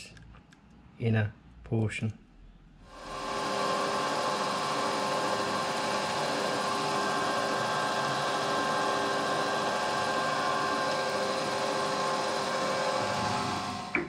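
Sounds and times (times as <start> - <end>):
metal lathe whining: 2.9 - 14.0.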